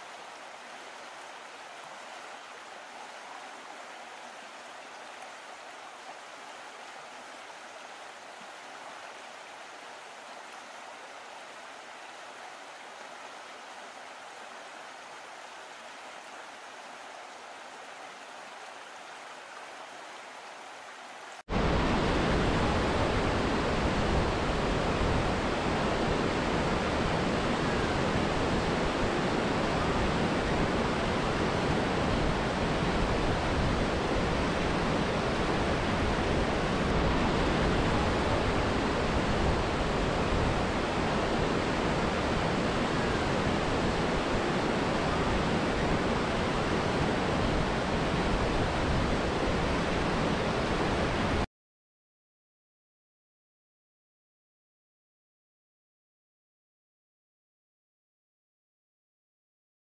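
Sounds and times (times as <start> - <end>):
waterfall rushing: 21.1 - 51.5.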